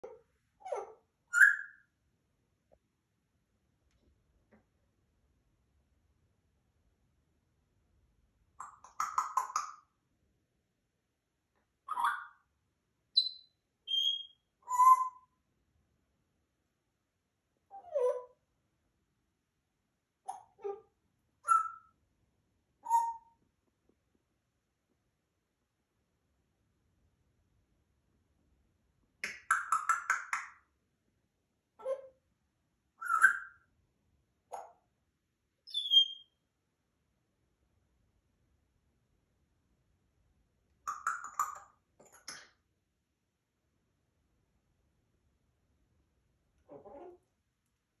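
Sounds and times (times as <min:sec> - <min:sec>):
parrot calling: 0:00.0 - 0:01.8, 0:11.9 - 0:12.4, 0:13.2 - 0:15.3, 0:20.3 - 0:21.9, 0:33.0 - 0:33.6, 0:35.7 - 0:36.3
parrot whistles: 0:00.7 - 0:01.8, 0:13.2 - 0:15.3, 0:21.5 - 0:21.9, 0:33.0 - 0:33.6, 0:35.7 - 0:36.3.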